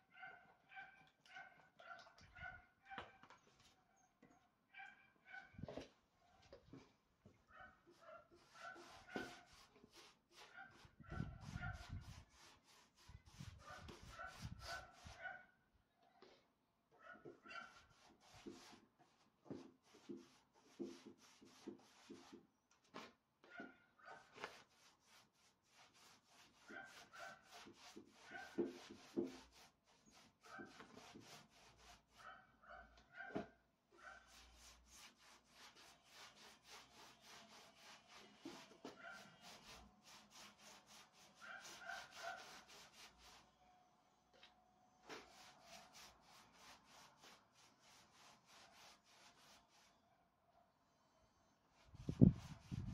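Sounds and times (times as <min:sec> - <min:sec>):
paintbrush rubbing strokes on wood: 0:07.9 - 0:15.3, 0:17.3 - 0:23.2, 0:24.2 - 0:32.3, 0:34.0 - 0:43.5, 0:45.0 - 0:50.0, 0:51.8 - 0:52.9.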